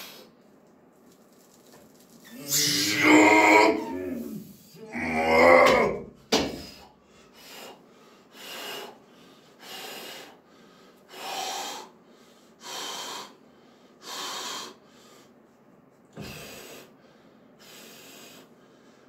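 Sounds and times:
man panting hard: 0:06.5 - 0:15.4.

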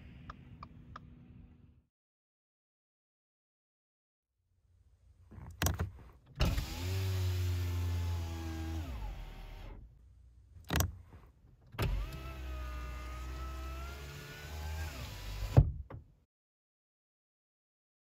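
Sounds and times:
car power window motor whine: 0:06.4 - 0:09.8, 0:11.8 - 0:15.6.

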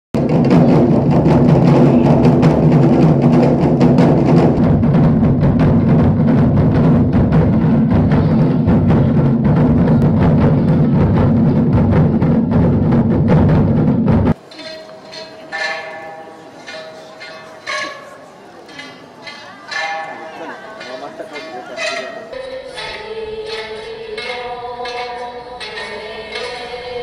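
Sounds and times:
fast ensemble drumming: 0:00.2 - 0:14.5.

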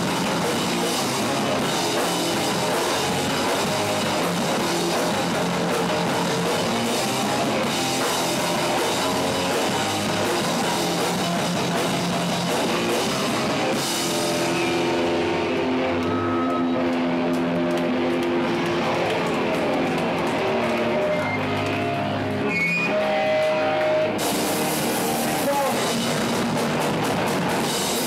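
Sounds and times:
drums and cymbals: 0:00.0 - 0:16.7, 0:22.4 - 0:28.0
distorted electric guitars: 0:00.0 - 0:28.0
punk band playing live: 0:00.0 - 0:28.0.

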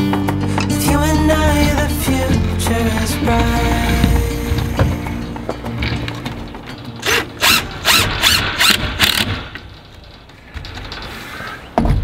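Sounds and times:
handling noise: 0:02.2 - 0:12.0
cordless drill driving screws: 0:07.0 - 0:09.4.

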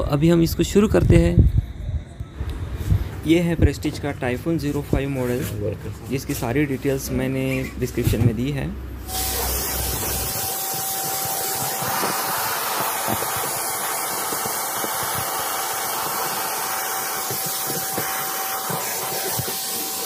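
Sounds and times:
vacuum cleaner running: 0:09.1 - 0:20.0.

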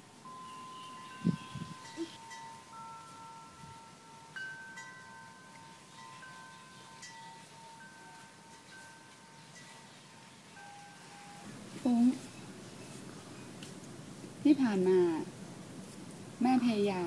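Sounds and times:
wind chimes ringing: 0:00.0 - 0:12.5.

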